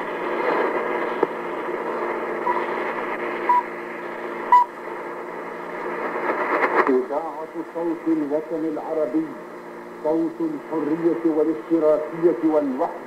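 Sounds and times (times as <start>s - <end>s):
faint hum tones: 0.0s - 13.0s
radio static hiss: 0.0s - 13.0s
short beeps: 3.5s - 3.7s, 4.5s - 4.7s.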